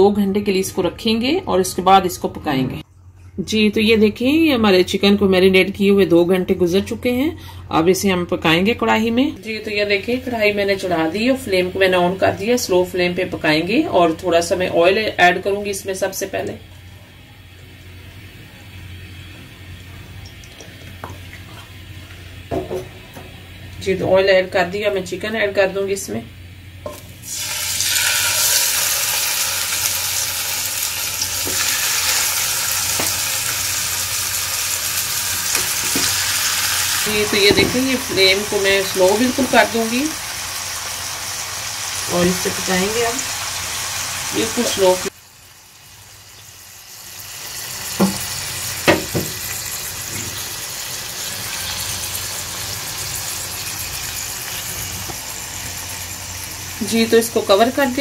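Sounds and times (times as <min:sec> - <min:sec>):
chicken sizzling in hot oil: 0:26.8 - 0:58.0
faint knocks in pan: 0:48.0 - 0:48.2.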